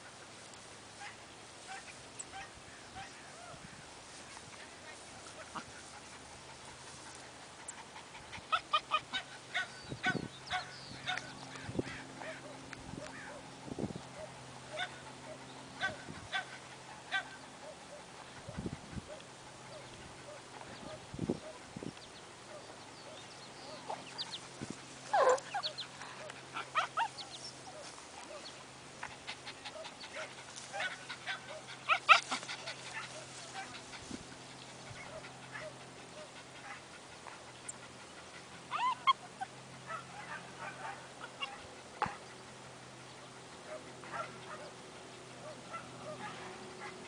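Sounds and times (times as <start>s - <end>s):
dog barking and yelping: 8.3s - 11.2s, 14.2s - 18.1s, 25.1s - 28.4s, 38.5s - 42.2s.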